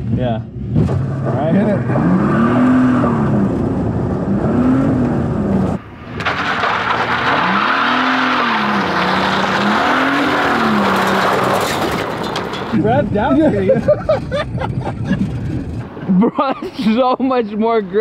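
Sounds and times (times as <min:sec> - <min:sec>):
minivan engine revving: 0:00.0 - 0:12.8
tires spinning on dirt: 0:00.7 - 0:15.9.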